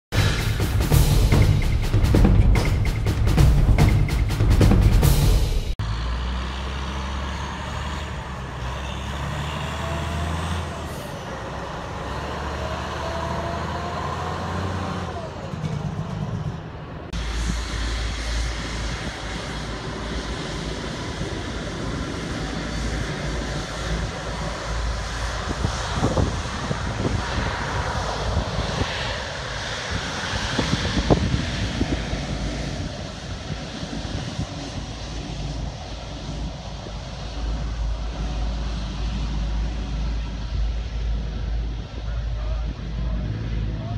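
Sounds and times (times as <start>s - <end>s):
jet engines rumbling: 0.0s - 43.9s
vehicle engines idling: 5.8s - 27.3s, 32.3s - 43.9s.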